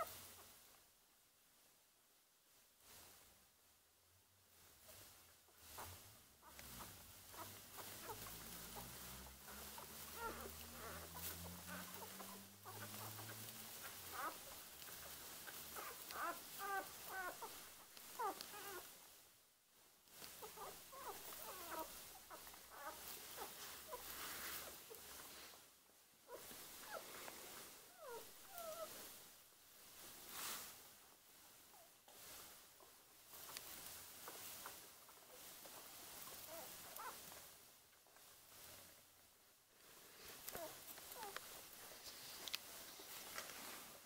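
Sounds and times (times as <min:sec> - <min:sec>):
puppies squeaking: 0:05.7 - 0:18.8, 0:20.4 - 0:25.0, 0:27.9 - 0:29.0, 0:36.2 - 0:37.2, 0:40.5 - 0:41.4.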